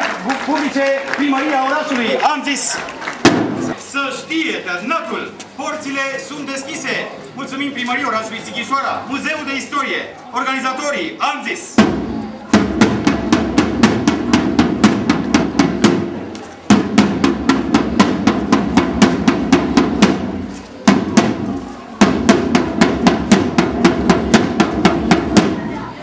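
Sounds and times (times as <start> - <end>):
side drum marching rhythm: 3.2 - 3.8, 11.8 - 25.8.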